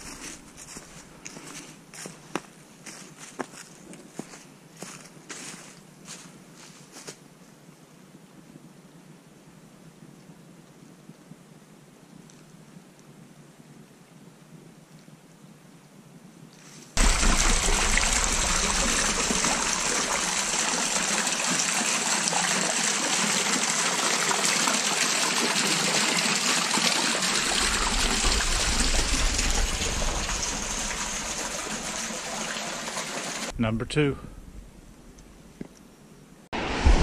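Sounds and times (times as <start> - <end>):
low rumble: 17.0 - 21.1, 27.3 - 32.6, 33.5 - 35.9, 36.6 - 37.0
creek water rushing: 17.0 - 33.5.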